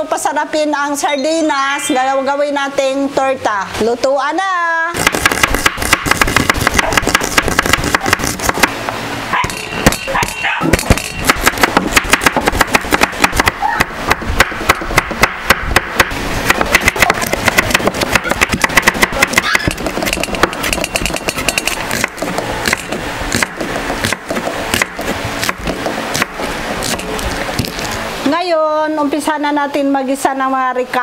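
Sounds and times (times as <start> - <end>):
knife chopping on wooden board: 5.0 - 8.7, 9.4 - 27.8.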